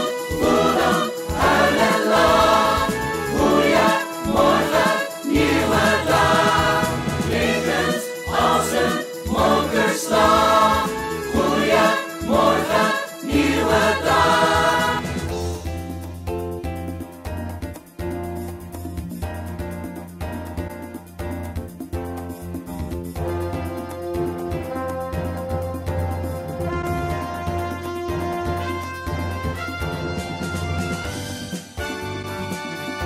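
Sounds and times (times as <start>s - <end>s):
people singing together: 0.0s - 15.3s
musical backing track: 0.0s - 33.0s.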